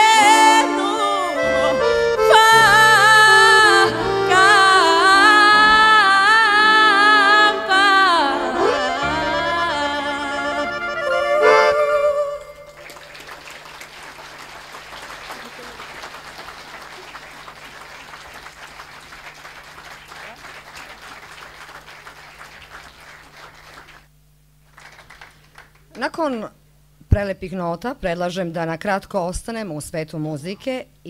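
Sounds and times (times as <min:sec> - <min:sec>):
woman singing with vibrato: 0:00.0 - 0:12.8
accordion: 0:00.0 - 0:13.9
applause: 0:12.6 - 0:26.0.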